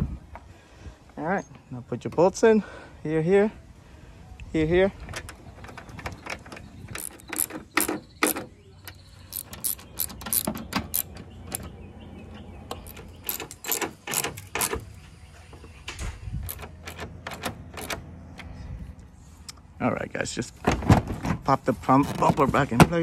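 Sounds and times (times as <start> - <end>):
socket ratchet clicking: 6.9 - 11.7, 12.7 - 14.8.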